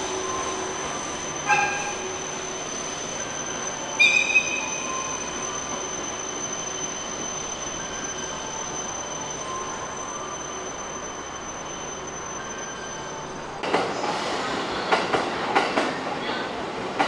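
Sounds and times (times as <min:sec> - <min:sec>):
thin high steady tone: 0:00.0 - 0:13.6
rail noise: 0:00.0 - 0:17.0
train wheel squeal: 0:00.0 - 0:17.0.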